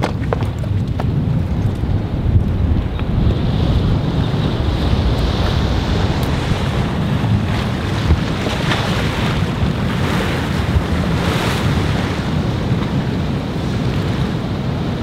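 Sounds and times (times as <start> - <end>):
waves washing: 0.0 - 15.0
wind buffeting microphone: 0.0 - 15.0.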